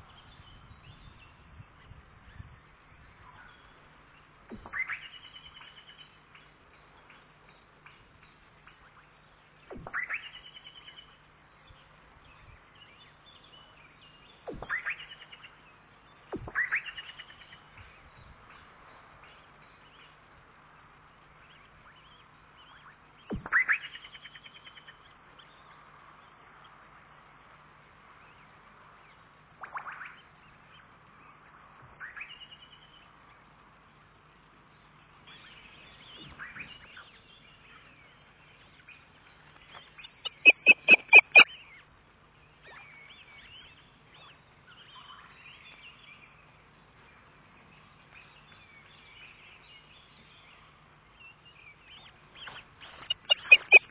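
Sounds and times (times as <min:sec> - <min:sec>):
osprey whistled calls: 0:04.5 - 0:06.2, 0:09.7 - 0:11.2, 0:12.8 - 0:15.6, 0:16.3 - 0:17.9, 0:21.5 - 0:25.7, 0:29.6 - 0:33.1, 0:35.3 - 0:39.0, 0:39.7 - 0:41.8, 0:42.6 - 0:46.4, 0:51.6 - 0:53.9.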